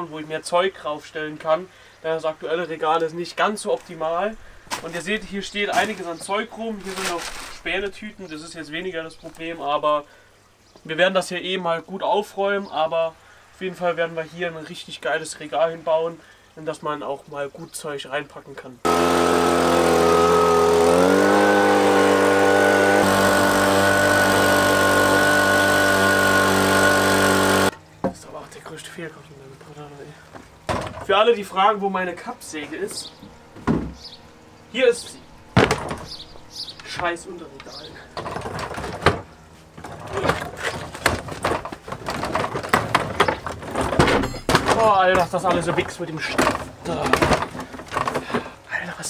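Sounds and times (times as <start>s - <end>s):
leaf blower running: 18.9s - 27.8s
mitre saw knocking and rattling: 18.9s - 28.2s.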